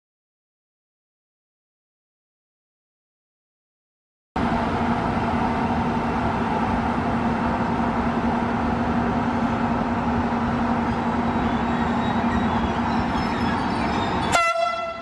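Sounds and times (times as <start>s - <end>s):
electric locomotive humming: 4.4s - 15.0s.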